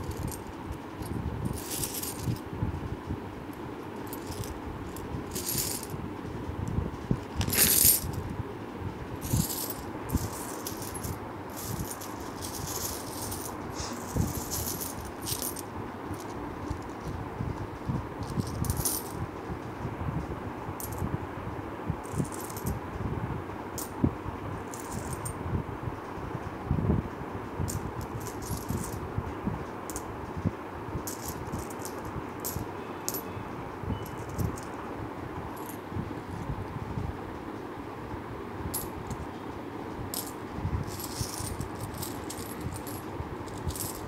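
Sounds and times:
coins clinking and jingling: 0.0s - 2.4s, 4.0s - 6.0s, 7.4s - 8.2s, 9.2s - 17.1s, 18.2s - 19.2s, 22.0s - 22.8s, 24.7s - 25.4s, 27.7s - 29.0s, 31.0s - 34.8s, 35.5s - 35.8s, 38.7s - 39.2s, 40.1s - 44.0s.

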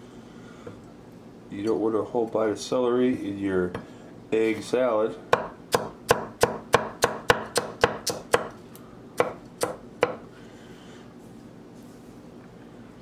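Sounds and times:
knife chopping on wooden board: 5.3s - 8.6s, 9.2s - 10.2s.

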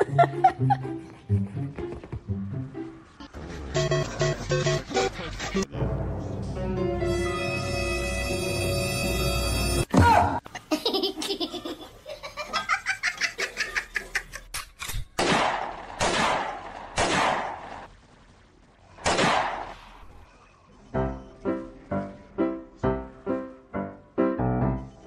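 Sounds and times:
person laughing: 0.0s - 1.7s, 10.5s - 14.5s.

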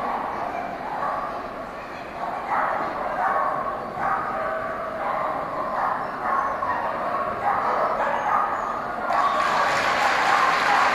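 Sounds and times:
dog barking: 0.1s - 1.4s, 2.2s - 9.4s, 10.0s - 10.9s
applause: 9.1s - 10.9s.

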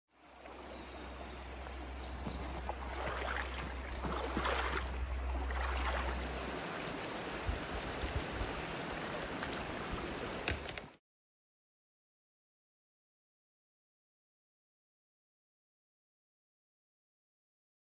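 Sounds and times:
stream running over rocks: 0.2s - 10.9s
low rumble: 0.8s - 8.6s.

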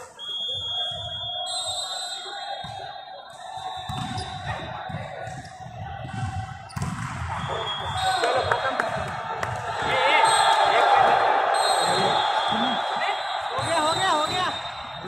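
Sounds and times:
volleyball thuds: 4.9s - 7.4s.

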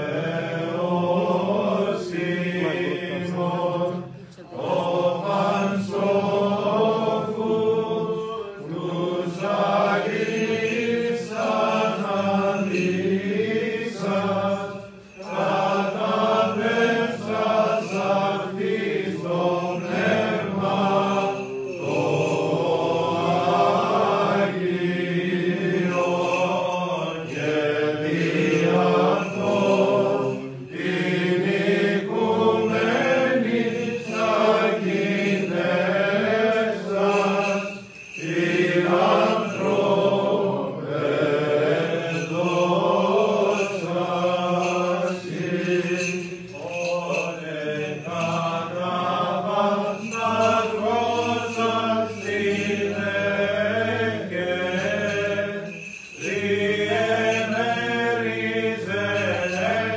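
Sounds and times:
men chanting: 0.0s - 59.9s.

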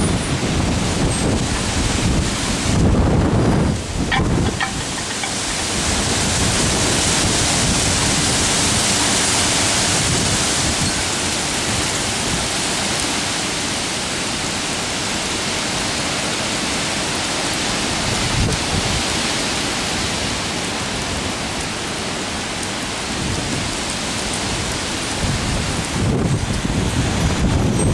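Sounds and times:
wind gusts buffeting microphone: 0.0s - 12.7s, 17.5s - 19.3s, 23.0s - 27.9s
rain: 0.0s - 27.9s
storm wind rushing through trees: 0.0s - 27.9s.

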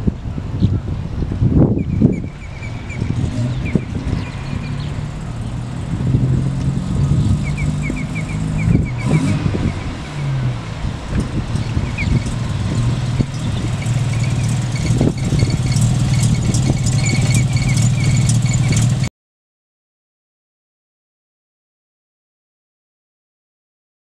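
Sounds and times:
rotary engine running: 2.4s - 19.1s.

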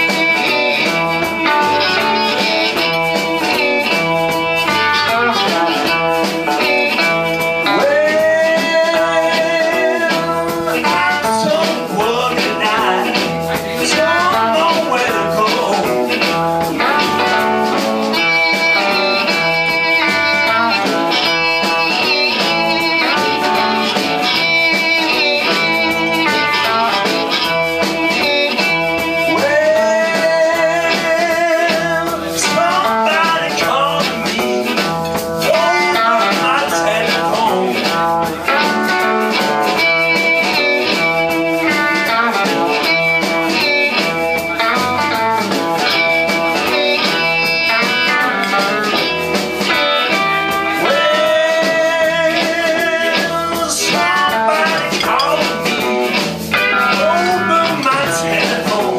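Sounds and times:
amplified blues harmonica: 0.0s - 58.9s
bass guitar: 0.0s - 58.9s
drums: 0.0s - 58.9s
electric guitar: 0.0s - 58.9s
man singing into microphone: 7.6s - 16.2s, 29.2s - 38.7s, 50.8s - 55.9s, 56.8s - 58.9s.

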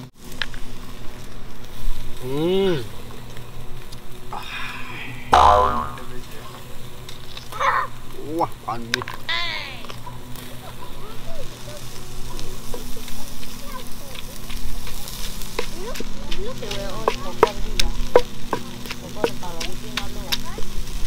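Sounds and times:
meat sizzling on grill: 0.0s - 21.0s
wooden pestle pounding in mortar: 17.0s - 20.1s.

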